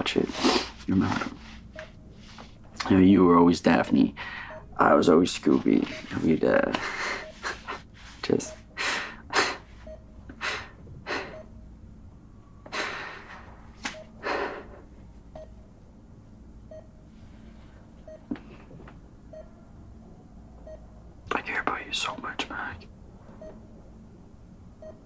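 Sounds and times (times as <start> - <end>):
man laughing softly: 6.5 - 8.1.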